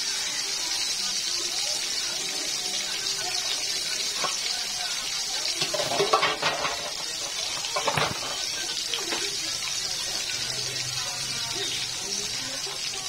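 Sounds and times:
fish frying in hot oil: 0:00.0 - 0:13.0
oil crackling: 0:02.9 - 0:13.0.

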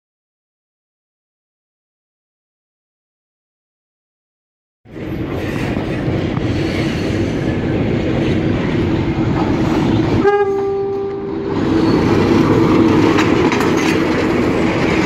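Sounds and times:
diesel locomotive rumbling on rails: 0:04.9 - 0:15.0
train horn blast: 0:10.1 - 0:11.6.

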